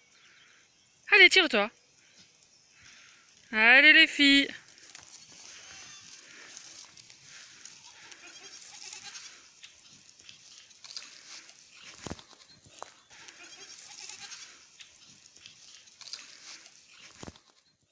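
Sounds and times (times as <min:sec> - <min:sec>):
faint outdoor hiss: 0:00.0 - 0:17.9
goats bleating: 0:04.8 - 0:10.2, 0:12.7 - 0:16.8.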